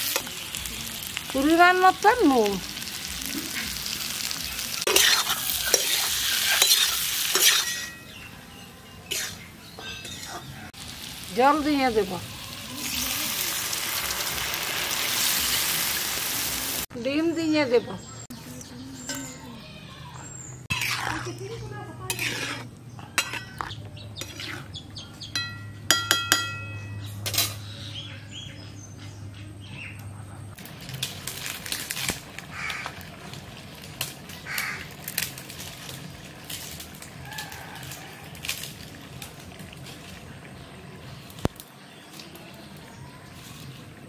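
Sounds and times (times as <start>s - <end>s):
outdoor ambience: 0.0s - 44.0s
spatula scraping metal wok: 4.8s - 8.2s, 9.0s - 10.6s, 20.6s - 24.8s.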